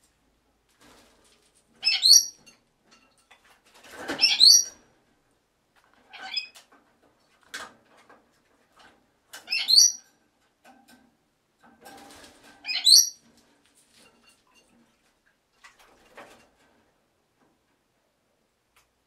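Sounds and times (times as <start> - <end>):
lorikeet screeching: 9.5 - 10.0.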